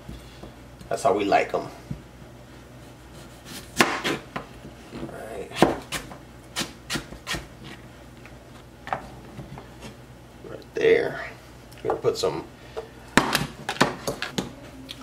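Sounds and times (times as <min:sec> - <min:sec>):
knife slicing potato on cutting board: 0:03.2 - 0:04.2.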